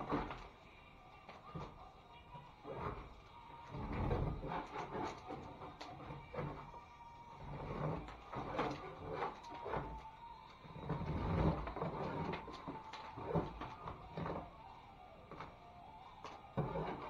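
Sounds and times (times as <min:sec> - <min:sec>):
metal scraper scraping drywall: 0:02.6 - 0:06.7, 0:07.4 - 0:10.0, 0:10.8 - 0:12.5, 0:16.6 - 0:17.0.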